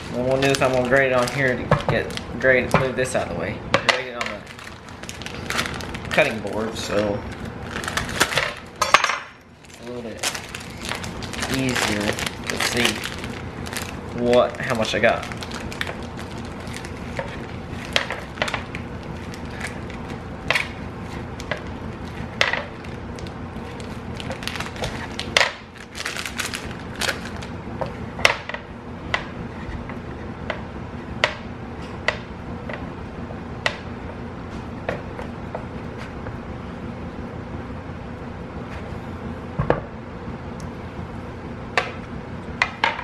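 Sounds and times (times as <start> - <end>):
plastic bag crinkling: 0.0 - 3.3, 4.2 - 8.8, 9.6 - 27.6.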